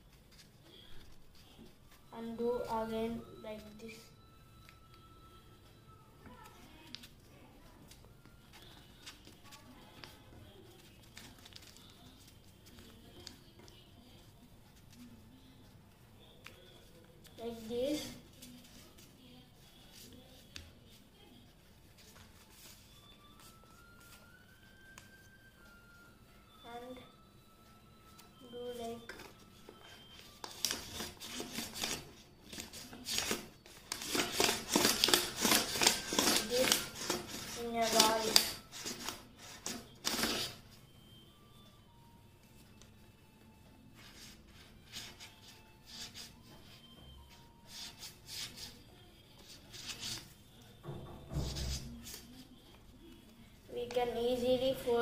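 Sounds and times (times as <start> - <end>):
paper crinkling and folding: 0.0 - 2.3, 6.4 - 26.0, 28.1 - 40.7, 43.8 - 50.6.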